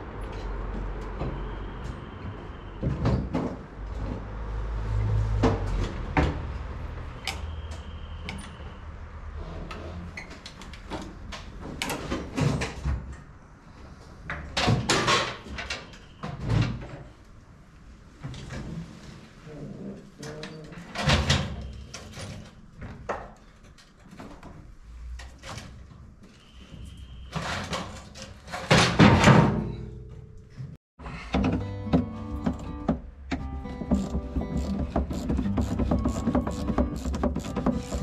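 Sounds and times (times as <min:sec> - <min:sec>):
knocks and rattles of parts handled: 0:33.8 - 0:38.0.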